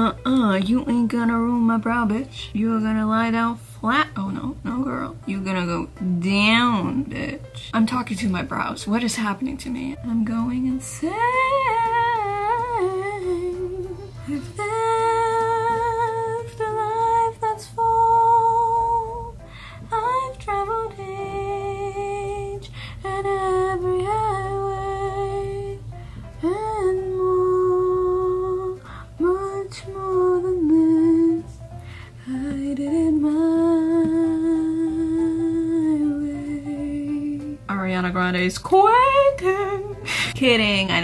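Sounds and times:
woman speaking: 0.0 - 10.8, 37.7 - 39.0, 40.3 - 41.0
woman singing: 0.0 - 41.0.

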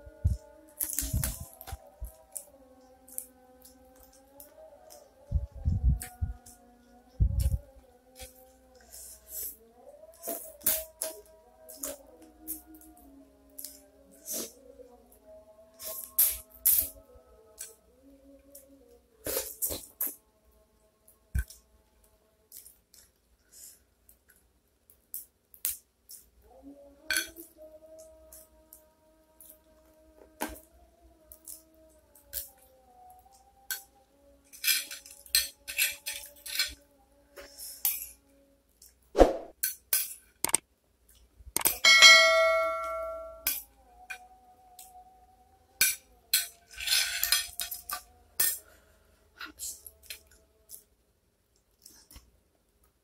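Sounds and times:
cutlery clinking on plate: 41.6 - 43.6, 45.8 - 48.6
faint steady tone: 41.7 - 46.6.

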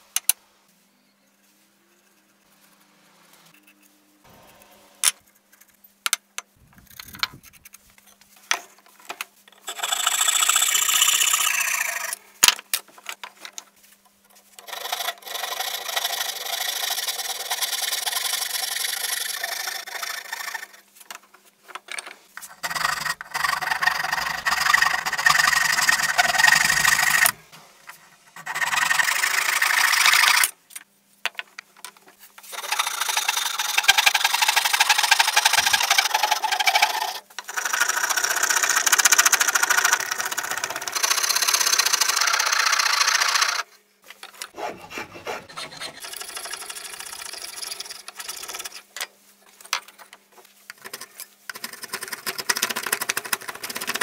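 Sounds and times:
hand saw cutting wood: 14.6 - 20.8, 22.4 - 30.5, 32.5 - 43.6, 44.5 - 48.8.

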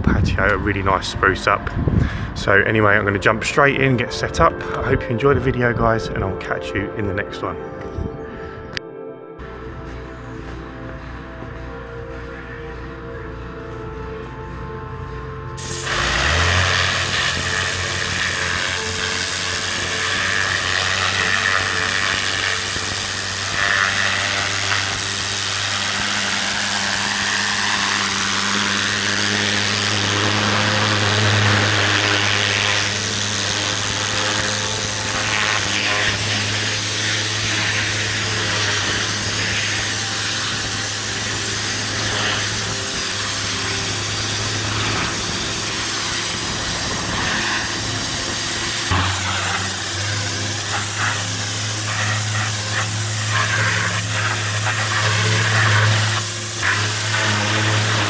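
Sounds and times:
pressure washer hum: 9.4 - 58.0
water jet hissing on stone: 15.6 - 58.0.

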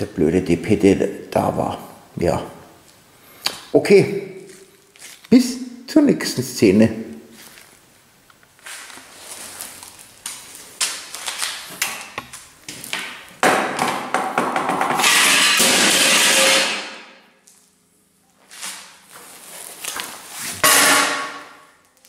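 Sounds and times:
loud steady scraping: 20.3 - 21.7.

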